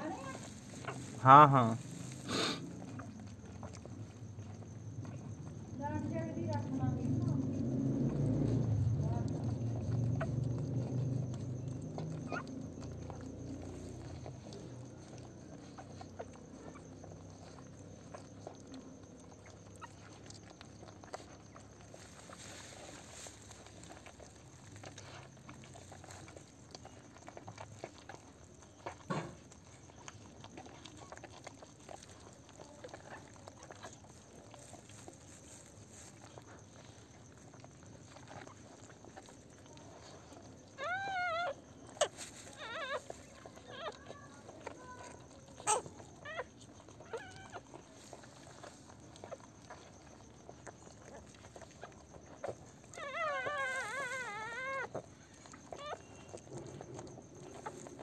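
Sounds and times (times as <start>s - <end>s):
scratchy rustling: 0.0s - 2.8s
puppy squeaking cries: 40.8s - 47.6s, 52.9s - 55.0s, 55.7s - 56.4s.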